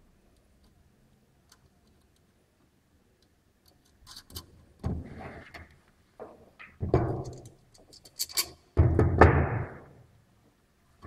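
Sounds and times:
metal parts clicking and knocking: 0:06.9 - 0:09.0.

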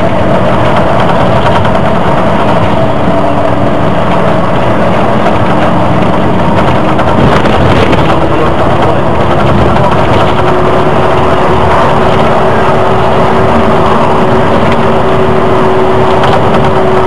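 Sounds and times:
bus engine and road noise: 0:00.0 - 0:17.0
steady whine: 0:00.0 - 0:17.0.

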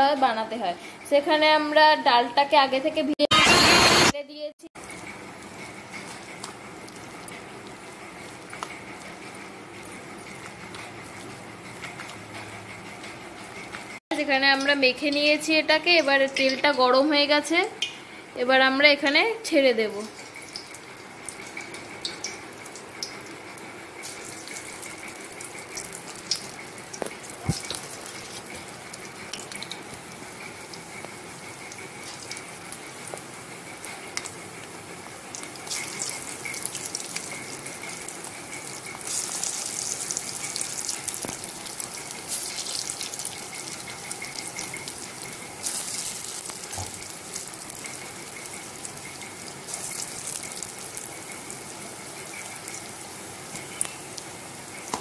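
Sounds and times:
fritters sizzling in hot oil: 0:13.4 - 0:55.0.

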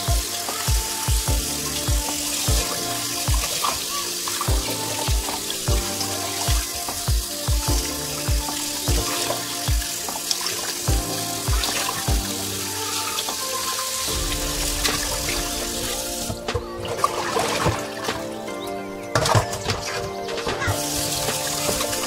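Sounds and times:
tap water running into metal bowl: 0:00.0 - 0:14.2
background music with bass beat: 0:00.0 - 0:22.0.

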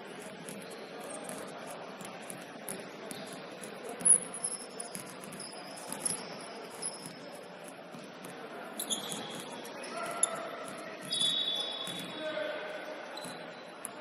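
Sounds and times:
shoes squeaking on hardwood floor: 0:03.0 - 0:12.2, 0:13.1 - 0:13.6.

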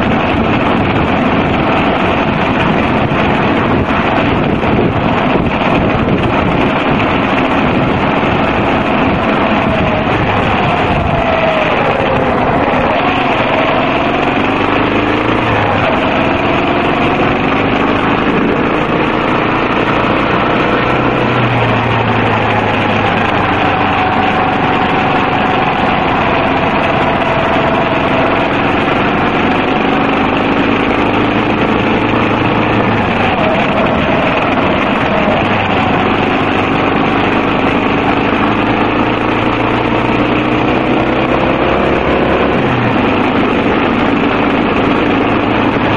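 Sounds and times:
motorcycle engine running: 0:00.0 - 0:45.9
wind and road noise: 0:00.0 - 0:45.9.

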